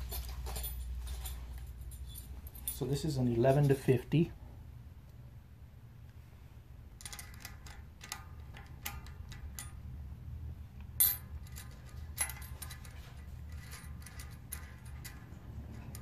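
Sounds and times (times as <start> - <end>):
metal cogs clinking: 11.0 - 16.0.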